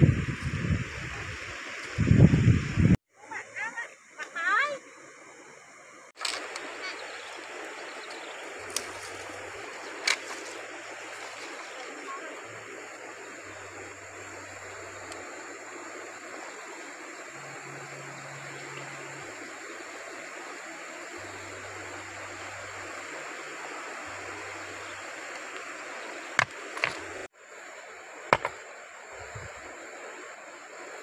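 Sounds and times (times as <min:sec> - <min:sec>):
river flowing: 0:05.0 - 0:31.0
river stones knocking together: 0:08.7 - 0:11.8, 0:26.4 - 0:27.2, 0:28.3 - 0:28.6.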